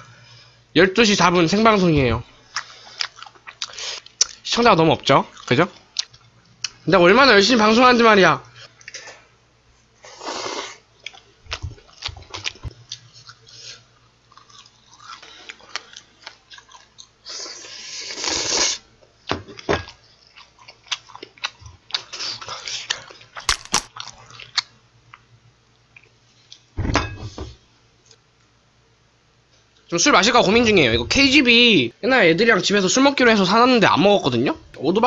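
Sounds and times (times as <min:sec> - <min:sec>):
slurping and chewing noodles: 0:02.5 - 0:04.3, 0:10.0 - 0:18.9, 0:20.0 - 0:23.4
heavy thump: 0:26.8 - 0:27.5.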